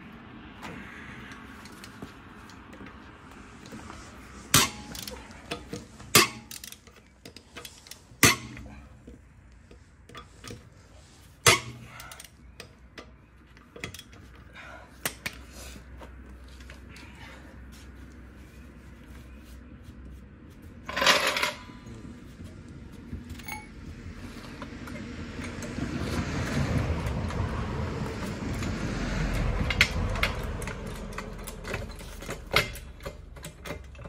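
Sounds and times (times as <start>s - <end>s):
wrench snapping on wheel bolts: 4.5s - 8.8s, 11.4s - 14.2s, 29.3s - 34.0s.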